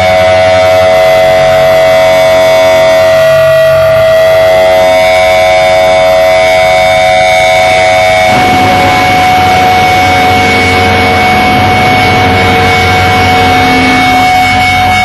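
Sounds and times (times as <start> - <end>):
guitar amplifier feedback: 0.0 - 15.0
low hum: 8.2 - 14.9.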